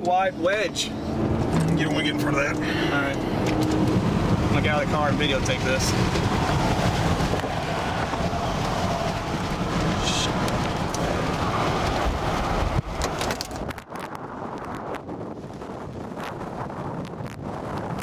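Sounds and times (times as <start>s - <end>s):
road and engine rumble in car: 0.0s - 18.0s
sharp clicks and knocks: 12.8s - 14.0s.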